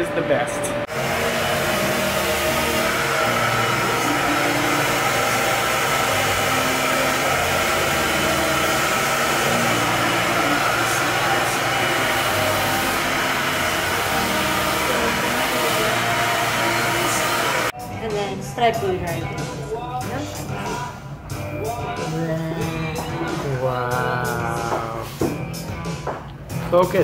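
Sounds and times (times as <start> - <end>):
hair dryer blowing: 0.0 - 17.8.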